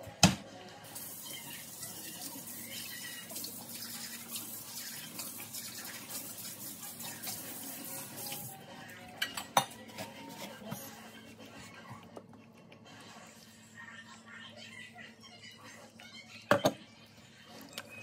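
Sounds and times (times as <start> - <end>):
water running from tap: 0.8 - 8.6.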